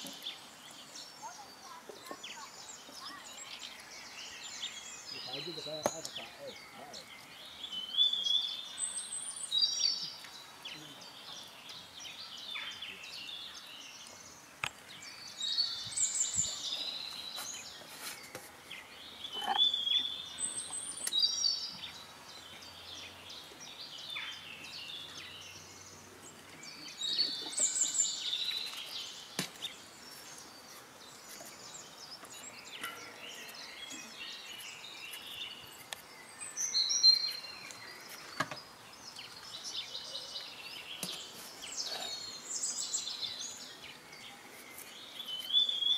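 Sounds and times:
birds singing: 0:00.0 - 0:45.9.

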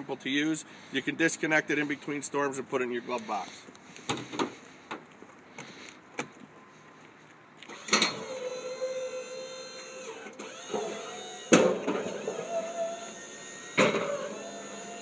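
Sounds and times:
pump motor clunk: 0:07.7 - 0:08.4, 0:10.0 - 0:15.0
hydraulic pump motor whine: 0:07.7 - 0:15.0.

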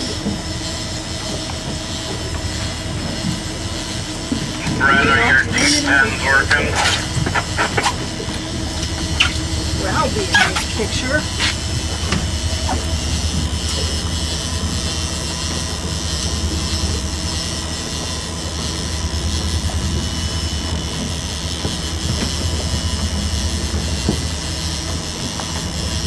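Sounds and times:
boat engine droning: 0:00.0 - 0:26.0.

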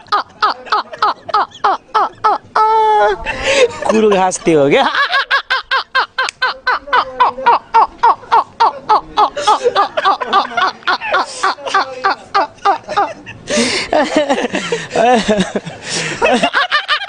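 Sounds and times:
men laughing: 0:00.0 - 0:17.0
breathy gasps: 0:03.3 - 0:03.8, 0:13.5 - 0:13.9.

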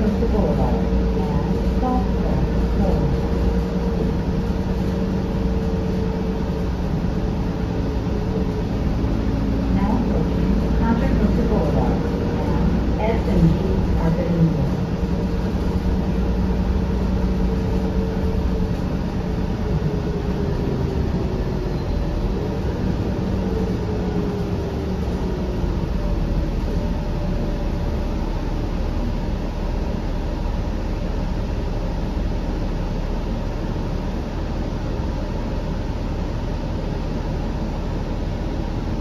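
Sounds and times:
bus engine and road rumble: 0:00.0 - 0:39.0.

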